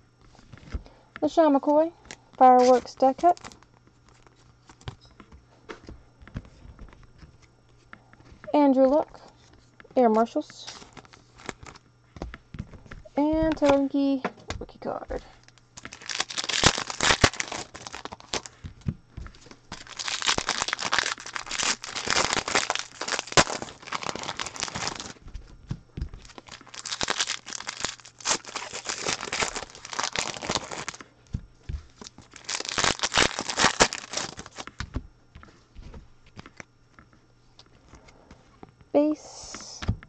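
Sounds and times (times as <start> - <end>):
foil wrappers crinkling and tearing: 1.5 - 5.0, 9.1 - 11.9, 14.8 - 31.1, 31.8 - 35.0.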